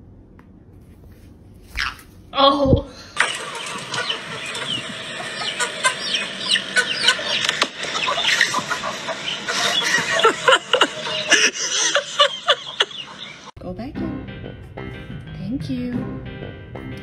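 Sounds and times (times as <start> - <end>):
chickens clucking: 3.2 - 13.5.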